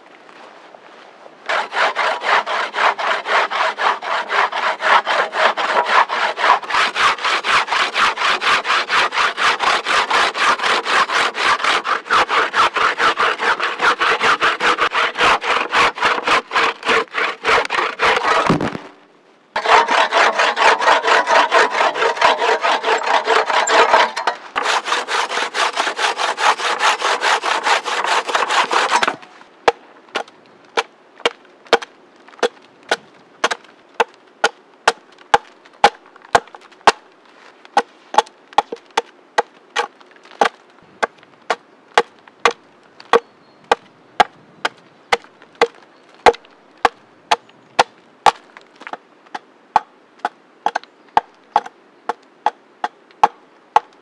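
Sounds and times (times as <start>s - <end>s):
hand saw cutting log: 1.5s - 18.8s, 19.6s - 29.3s.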